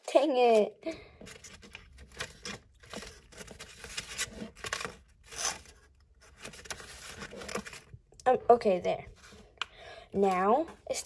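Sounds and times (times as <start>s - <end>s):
paper package rustling: 1.2s - 8.0s.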